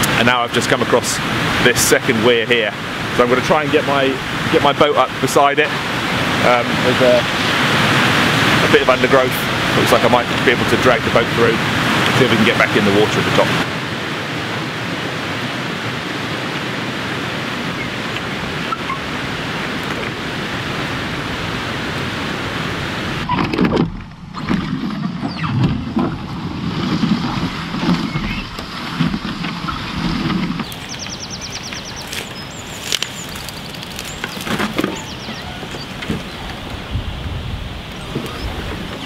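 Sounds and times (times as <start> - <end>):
water rushing over weir: 0.0 - 39.0
canoe hull scraping and bumping: 22.8 - 39.0
twigs clicking and snapping: 30.6 - 35.2.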